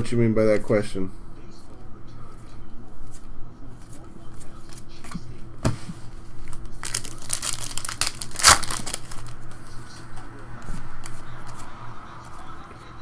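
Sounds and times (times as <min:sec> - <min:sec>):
cards rustling: 0:06.4 - 0:11.7
foil wrapper crinkling and tearing: 0:06.6 - 0:09.4.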